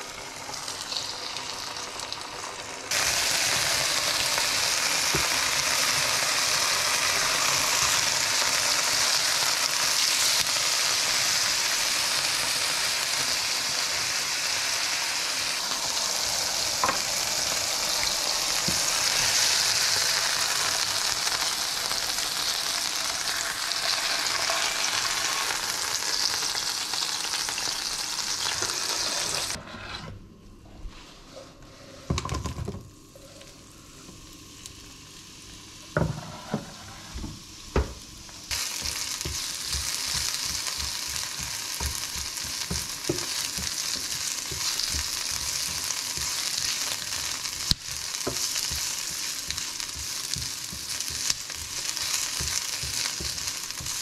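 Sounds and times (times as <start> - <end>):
chicken sizzling in oil: 0.0 - 29.6, 37.5 - 54.0
onions frying in pan: 0.0 - 29.6, 32.2 - 54.0
spatula tapping and scraping pan: 38.8 - 46.8, 47.6 - 54.0.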